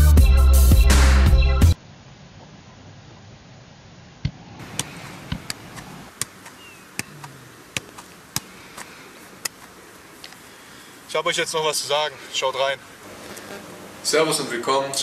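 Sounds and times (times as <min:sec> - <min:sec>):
foot kicking football: 0:04.2 - 0:09.8.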